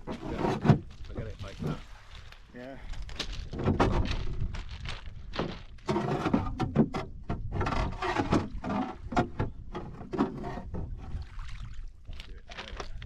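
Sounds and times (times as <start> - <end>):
pebbles shifting underfoot: 0.7 - 6.1, 12.0 - 13.0
wind rumble on microphone: 2.9 - 13.0.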